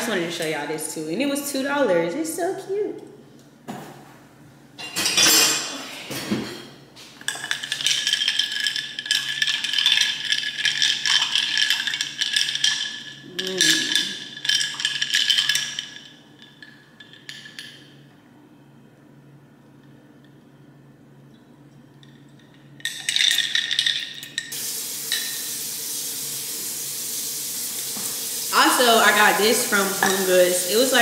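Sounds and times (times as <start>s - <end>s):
ice clinking against glass: 22.1s - 25.4s.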